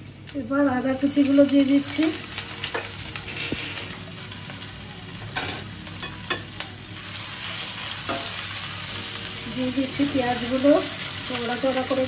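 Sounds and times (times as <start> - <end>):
garlic sizzling in hot oil: 0.0 - 12.0.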